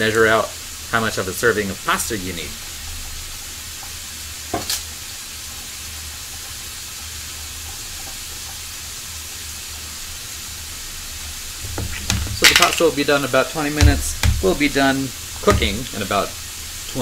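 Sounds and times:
food sizzling in a frying pan: 0:00.0 - 0:17.0
utensil knocking against pan: 0:11.6 - 0:12.8, 0:13.7 - 0:16.3.

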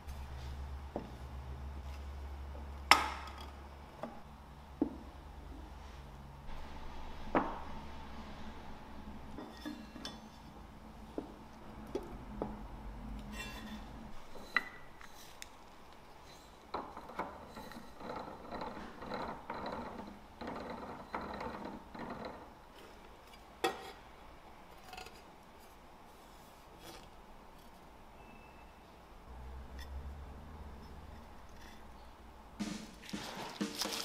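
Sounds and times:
rolling pin rattling over wire rack: 0:16.8 - 0:22.5.

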